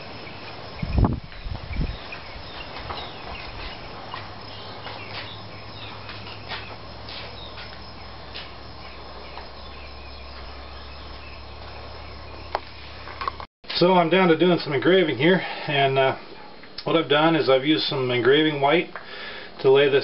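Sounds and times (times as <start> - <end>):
steady low hum: 0.0 - 13.4.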